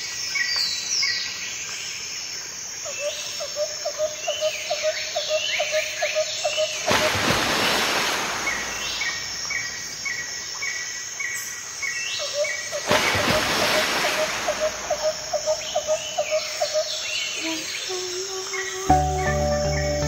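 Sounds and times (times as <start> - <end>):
birds falling chirps: 6.6 - 10.3, 12.6 - 17.4
bird repeating low note: 14.1 - 20.0.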